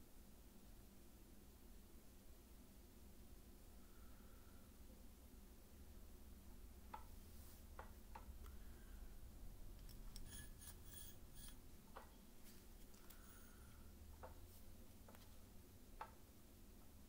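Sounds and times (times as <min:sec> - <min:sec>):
low steady hum: 0:00.0 - 0:17.0
thin high ticks and scraping: 0:09.8 - 0:13.8.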